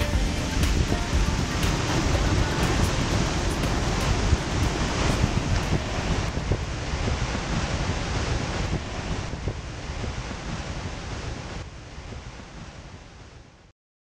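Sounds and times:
wind buffeting microphone: 0.0 - 13.1
surf washing: 0.0 - 13.3.

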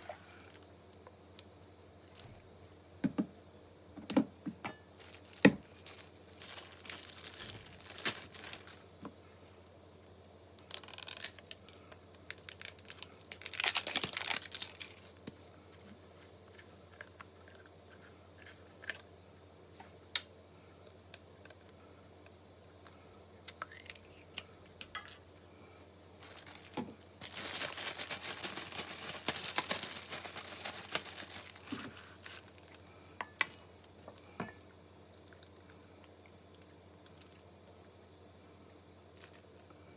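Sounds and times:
plastic wrapping crinkling and tearing: 5.0 - 8.8, 10.6 - 11.4, 12.3 - 15.3, 26.2 - 32.9.

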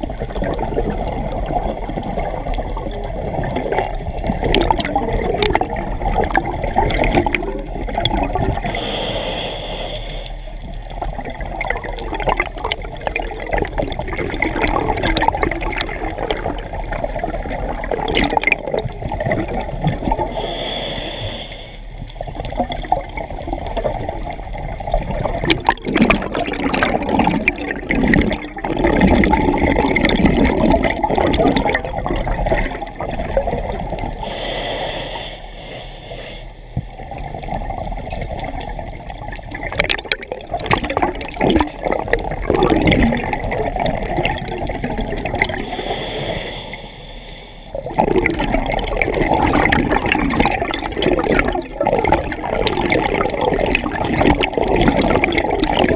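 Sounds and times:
gurgling exhaled bubbles: 0.0 - 47.0, 47.7 - 55.9
scuba regulator inhale hiss: 8.6 - 10.6, 20.3 - 22.0, 34.2 - 36.7, 45.6 - 47.8.

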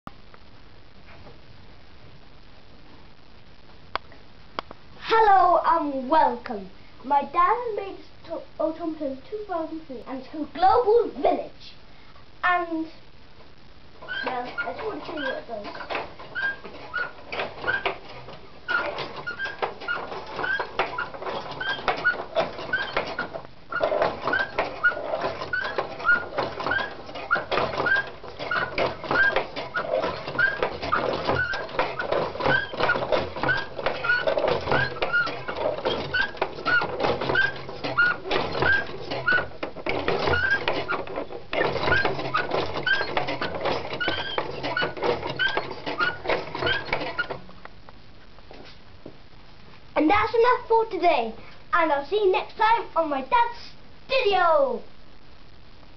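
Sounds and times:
short rising squeak: 14.0 - 17.9, 18.7 - 47.4
clattering mechanical automaton: 14.1 - 47.4.

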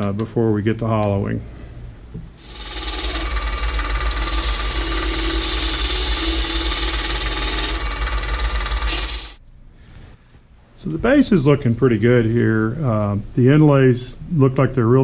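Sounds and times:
turning tool cutting wood: 2.4 - 9.4
wood lathe humming: 2.4 - 9.4.

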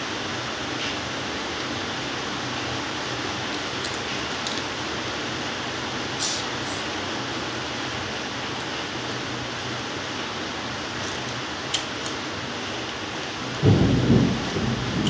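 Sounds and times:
steady rain hissing: 0.0 - 15.0
loud low rumble: 13.6 - 15.0.

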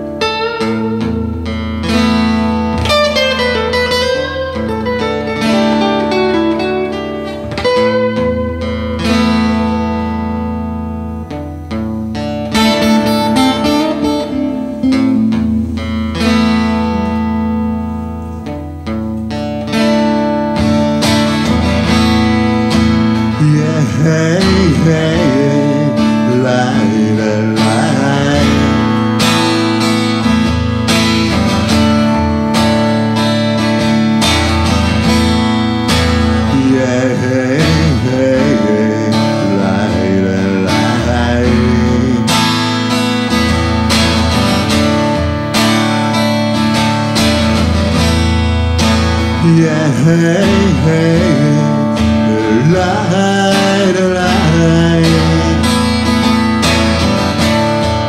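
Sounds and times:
acoustic guitar picked and strummed: 0.0 - 58.0
man singing: 22.4 - 29.6, 36.2 - 43.1, 49.2 - 56.7.

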